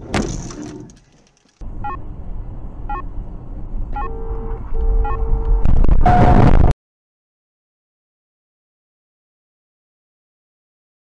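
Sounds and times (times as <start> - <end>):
car road noise: 0.0 - 6.7.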